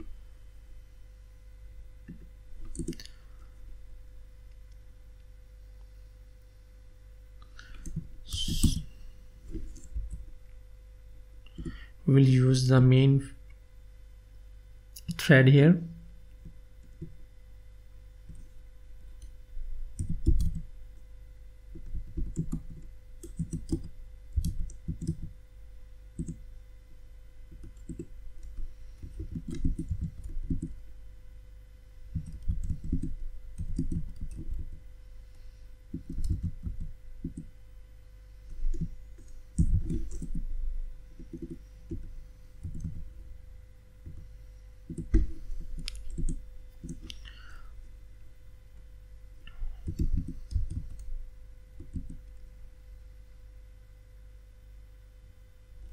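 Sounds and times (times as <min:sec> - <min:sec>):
keyboard keys clicking: 0:02.6 - 0:03.0, 0:27.6 - 0:30.8, 0:32.2 - 0:34.7, 0:35.9 - 0:37.5, 0:41.2 - 0:43.0, 0:44.9 - 0:47.2.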